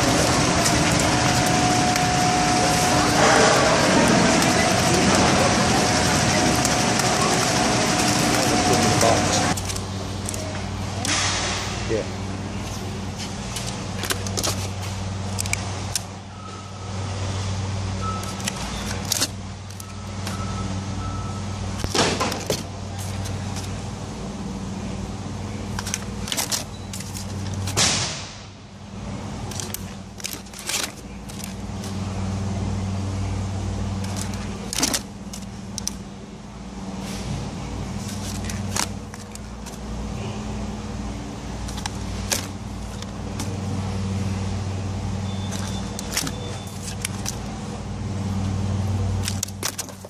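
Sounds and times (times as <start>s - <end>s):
machinery hum: 0.0s - 50.0s
plastic containers clicking: 25.7s - 27.7s, 29.5s - 32.0s, 45.5s - 47.5s, 49.2s - 50.0s.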